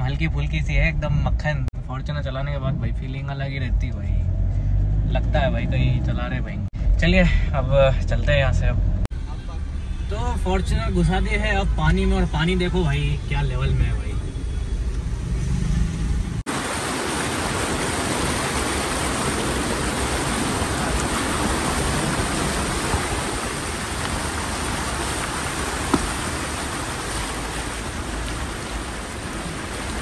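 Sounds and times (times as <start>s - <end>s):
flood water rushing and splashing: 16.4s - 30.0s.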